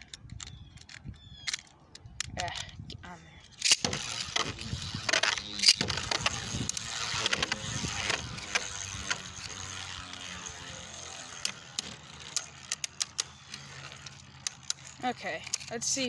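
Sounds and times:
spinning tops whirring and grinding: 3.5 - 16.0
spinning tops clicking together: 3.6 - 16.0.

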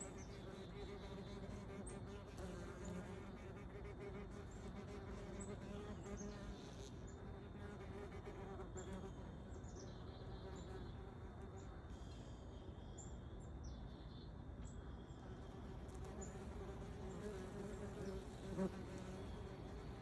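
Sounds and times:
wasp wings buzzing: 15.6 - 20.0.

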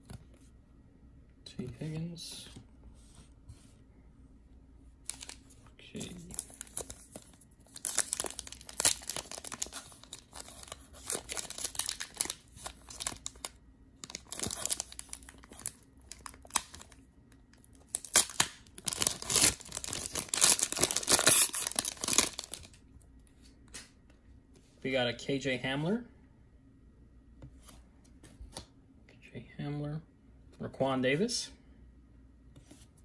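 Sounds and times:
foil wrapper crinkling: 6.0 - 17.0, 17.6 - 22.8.

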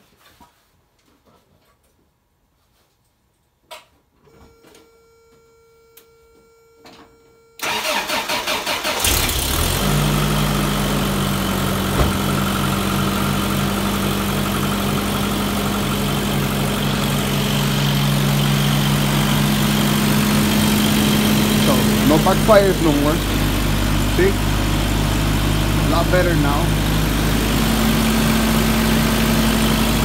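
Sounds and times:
engine cranking: 7.6 - 9.8
engine idling: 7.6 - 30.0.

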